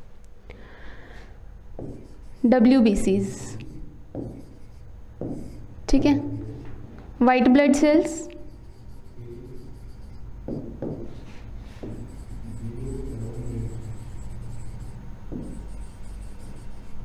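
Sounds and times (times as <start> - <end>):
low steady hum: 0.0 - 17.0
stylus tapping and writing on board: 1.8 - 2.5, 3.4 - 6.0, 8.3 - 17.0.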